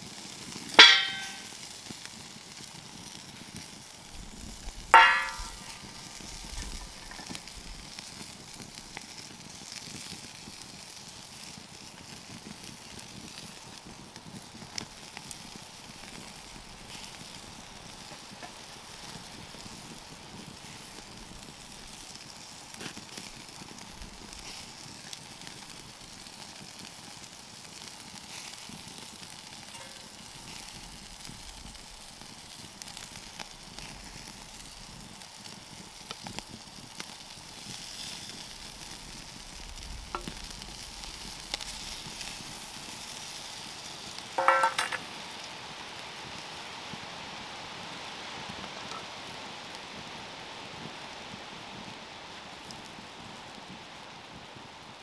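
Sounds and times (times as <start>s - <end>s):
burger sizzling over wood fire: 0.0s - 55.0s
faint fire crackle: 0.0s - 55.0s
loud metallic clang: 0.8s - 1.5s, 5.0s - 5.8s, 44.4s - 45.0s.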